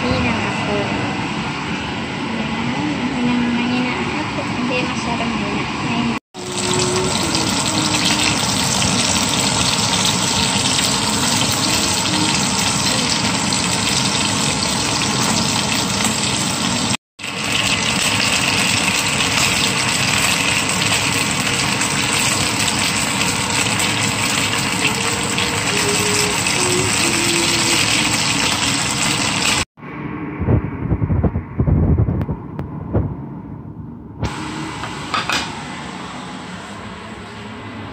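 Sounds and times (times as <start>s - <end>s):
chicken sizzling in hot oil: 6.4s - 29.7s.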